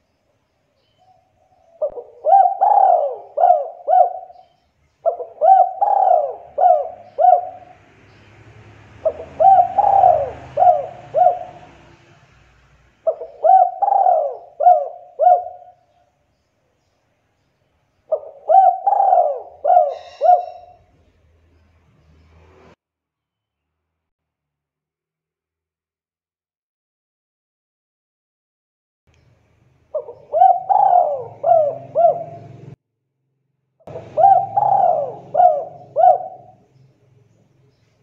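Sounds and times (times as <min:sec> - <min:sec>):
dove cooing: 0:01.4 - 0:07.8, 0:09.0 - 0:12.0, 0:13.0 - 0:15.9, 0:18.1 - 0:20.9, 0:29.9 - 0:32.8, 0:33.9 - 0:36.6.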